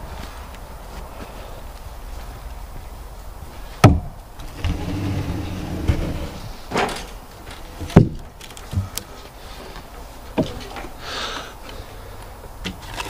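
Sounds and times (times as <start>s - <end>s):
timber scraping across timbers: 3.8s - 11.0s.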